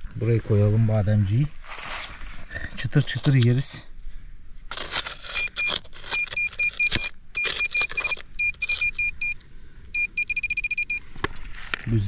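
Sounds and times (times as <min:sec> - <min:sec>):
digging rustling and scraping: 0:00.0 - 0:08.2
metal detector beeping: 0:05.2 - 0:11.1.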